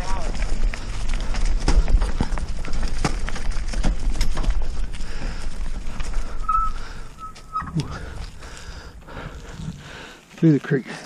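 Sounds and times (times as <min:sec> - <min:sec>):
mountain bike rattling: 0:00.0 - 0:11.0
short high squeal: 0:06.4 - 0:08.2.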